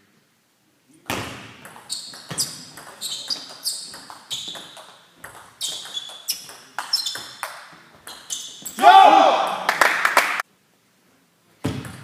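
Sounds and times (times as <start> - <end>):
table tennis ball hitting bats: 1.1 - 8.7.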